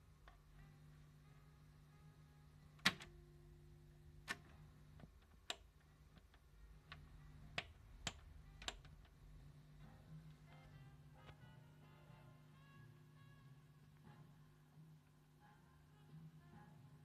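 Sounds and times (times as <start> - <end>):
low steady hum: 0.0 - 17.0
selector buttons clicking: 2.8 - 3.2, 4.2 - 9.2.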